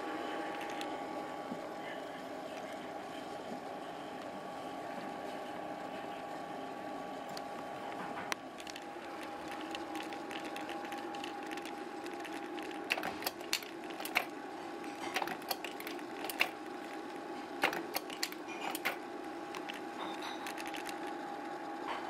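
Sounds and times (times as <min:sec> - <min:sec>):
slide projector fan and motor: 0:00.0 - 0:22.0
projector mechanism clicks: 0:08.6 - 0:14.4, 0:15.0 - 0:16.6, 0:17.6 - 0:21.2.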